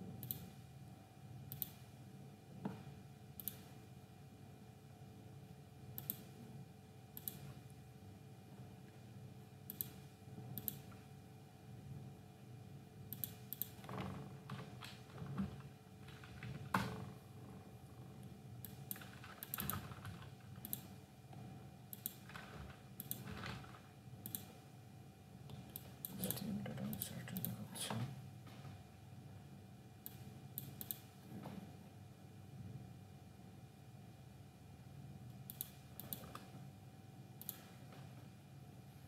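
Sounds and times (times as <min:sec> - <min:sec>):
faint steady hum: 0:00.0 - 0:39.0
keyboard typing: 0:18.6 - 0:21.0, 0:21.9 - 0:24.5.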